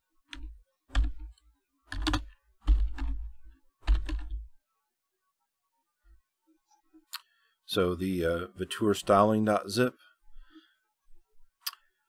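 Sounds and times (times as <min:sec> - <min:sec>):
computer keyboard typing: 0:00.3 - 0:04.5.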